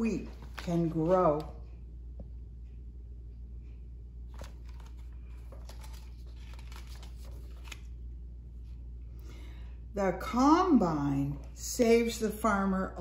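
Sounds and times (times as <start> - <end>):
steady low hum: 0.0 - 13.0
book pages rustling: 0.2 - 1.6, 4.3 - 8.0.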